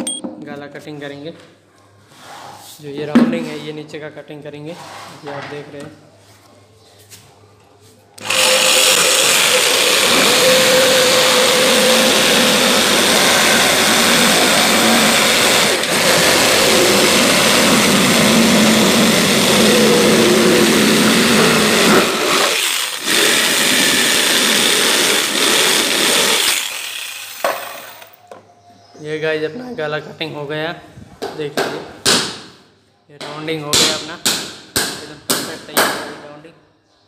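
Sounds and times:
jigsaw cutting plywood: 8.2 - 28.1.

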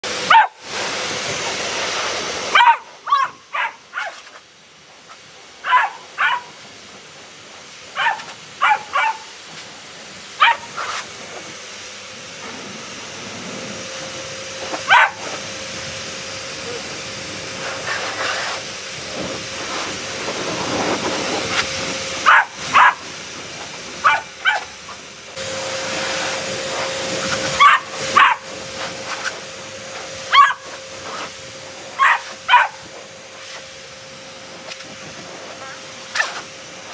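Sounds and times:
blower dryer hissing: 0.0 - 36.9
dog barking: 0.2 - 0.6, 2.5 - 4.2, 5.6 - 6.6, 8.0 - 9.4, 10.4 - 10.9, 14.8 - 15.3, 22.2 - 23.0, 24.0 - 24.8, 27.6 - 28.5, 30.3 - 31.2, 31.9 - 32.9.

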